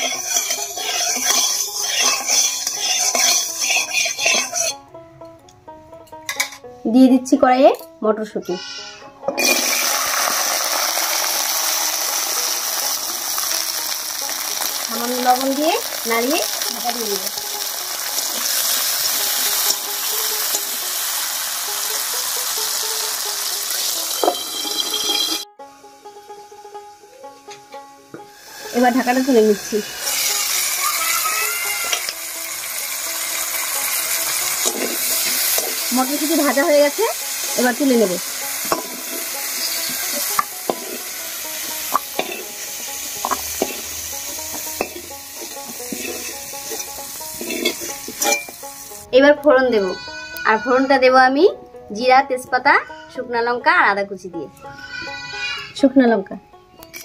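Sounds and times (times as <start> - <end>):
metal spatula scraping: 0.0 - 4.8, 8.4 - 10.1, 23.8 - 25.5, 33.2 - 48.7
peas sizzling in hot oil: 0.0 - 4.8, 8.6 - 25.4, 28.2 - 49.2
spatula clinking on metal: 0.0 - 4.8, 24.0 - 25.4, 34.4 - 36.7, 38.6 - 41.0, 42.0 - 42.5, 44.5 - 48.6
faint background music: 0.0 - 57.0.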